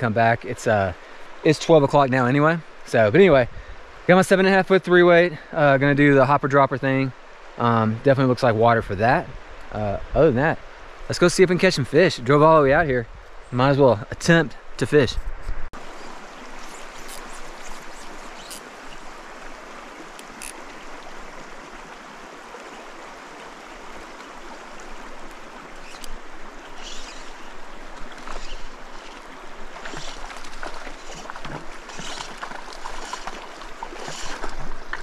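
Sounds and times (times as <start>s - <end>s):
stream babbling over rocks: 15.8s - 35.0s
water splashes: 15.8s - 35.0s.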